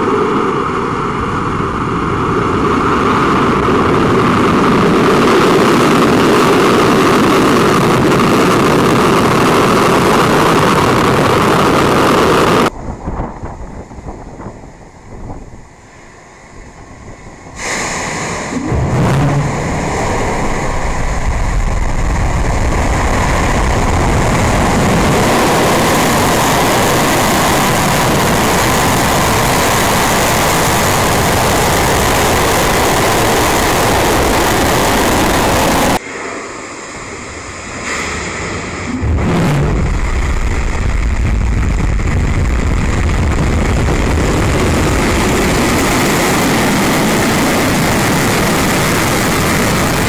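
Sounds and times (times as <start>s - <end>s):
rocket engine roaring: 0.0s - 50.0s
quiet rumble: 36.2s - 48.1s.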